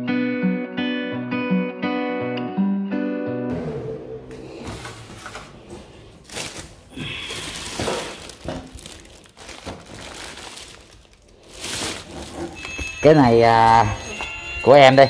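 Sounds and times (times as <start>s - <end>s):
plastic bags rustling: 4.4s - 15.0s.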